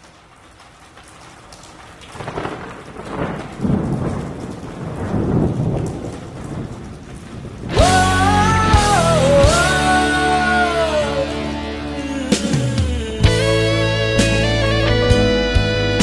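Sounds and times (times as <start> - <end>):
rain: 0.0 - 16.0
rolling thunder: 2.2 - 9.7
rock band with bending lead line: 7.7 - 16.0.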